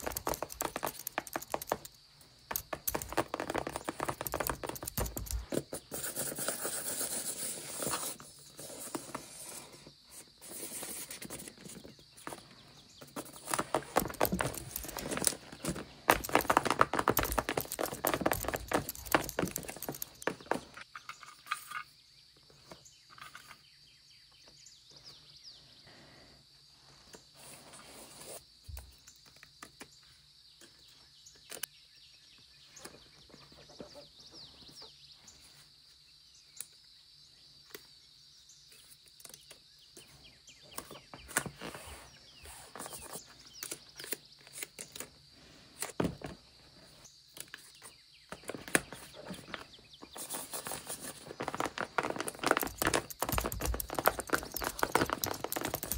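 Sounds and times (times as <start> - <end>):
paper crinkles and rustles: 48.4 - 55.9.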